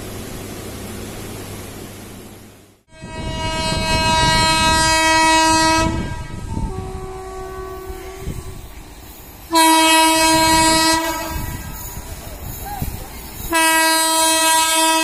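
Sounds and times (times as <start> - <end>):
train rumbling: 0.0 - 15.0
locomotive air horn blasts: 2.9 - 8.6, 9.5 - 11.9, 13.5 - 15.0.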